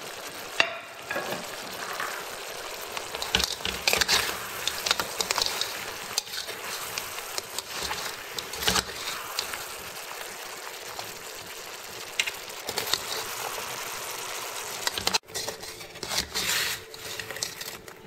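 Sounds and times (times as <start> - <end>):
syrup bubbling and sizzling in wok: 0.0 - 18.0
scraping and clattering in wok: 0.3 - 18.0
metal spatula tapping wok: 0.6 - 2.2, 3.1 - 9.6.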